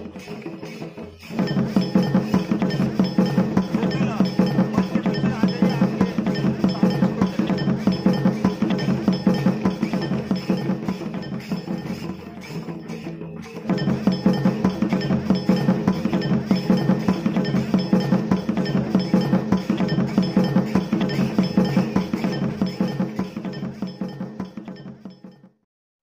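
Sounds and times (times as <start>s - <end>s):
clicking percussion beat: 0.0s - 25.6s.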